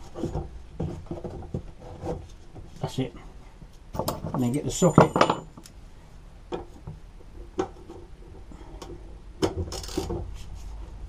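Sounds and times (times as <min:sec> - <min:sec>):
metal clicks and knocks: 0:03.9 - 0:05.7.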